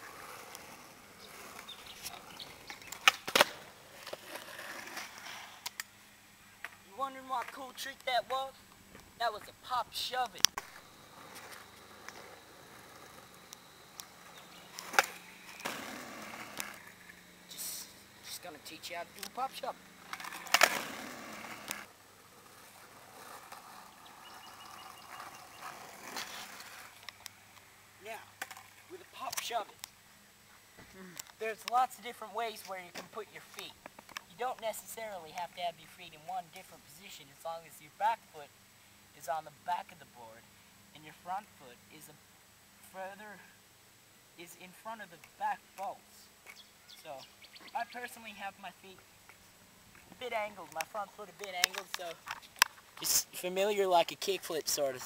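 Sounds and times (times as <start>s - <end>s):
skateboard clacks on asphalt: 0.0s - 5.9s, 10.4s - 17.2s, 20.0s - 27.6s
quiet street ambience: 0.0s - 55.0s.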